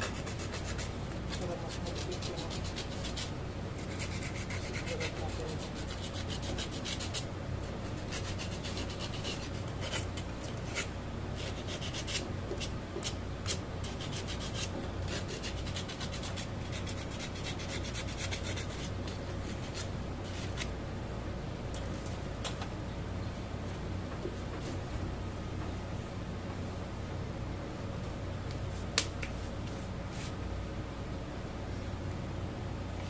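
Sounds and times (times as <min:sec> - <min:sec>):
sandpaper scraping copper tube: 0:00.0 - 0:20.7.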